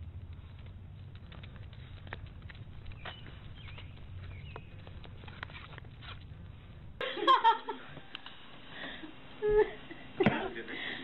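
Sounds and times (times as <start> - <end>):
people laughing and giggling: 7.0 - 8.0, 8.7 - 11.0.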